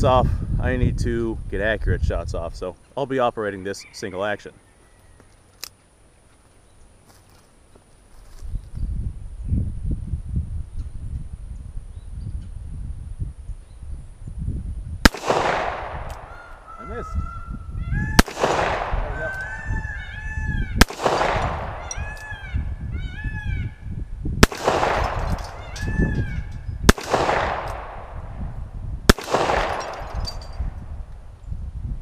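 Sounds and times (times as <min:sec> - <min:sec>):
revolver shots with ringing echo: 0:15.0 - 0:16.7, 0:18.2 - 0:19.2, 0:20.8 - 0:22.2, 0:24.4 - 0:25.9, 0:26.8 - 0:28.4, 0:29.1 - 0:30.8
peacocks screaming: 0:16.2 - 0:23.9, 0:24.9 - 0:26.7.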